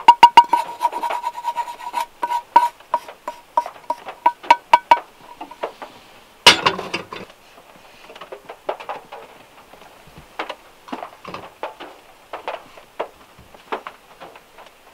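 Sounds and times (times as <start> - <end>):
spoon scraping in plastic tub: 0.0 - 5.7
pan clattering on stove grate: 0.0 - 5.8, 6.4 - 7.3, 10.9 - 11.8
wooden spoon knocking on pan: 0.0 - 5.8.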